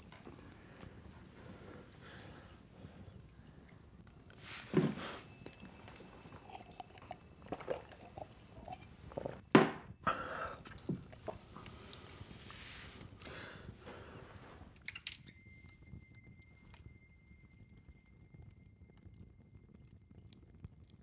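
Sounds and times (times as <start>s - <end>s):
man swallowing: 4.7s - 11.7s.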